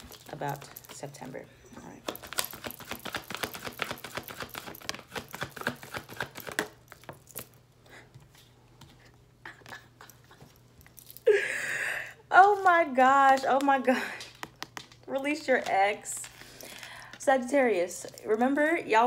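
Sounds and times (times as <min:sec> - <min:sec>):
cards being shuffled: 0:00.0 - 0:09.8, 0:12.4 - 0:17.0.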